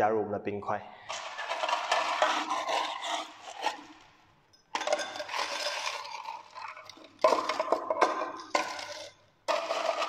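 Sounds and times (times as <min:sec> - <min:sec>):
ice cubes clattering into glass: 0:04.7 - 0:10.0.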